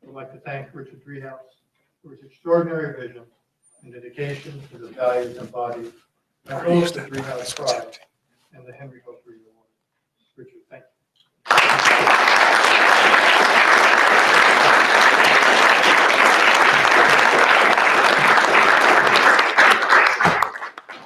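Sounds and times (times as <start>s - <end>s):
audience applauding: 11.5s - 21.0s.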